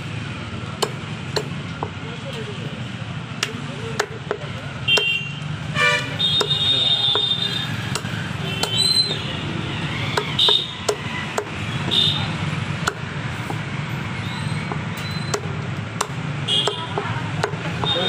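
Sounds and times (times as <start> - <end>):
low street hum: 0.0 - 18.0
cleaver chopping on wooden block: 0.8 - 2.0, 3.4 - 5.2, 6.3 - 8.8, 10.0 - 12.2, 12.8 - 13.7, 14.6 - 18.0.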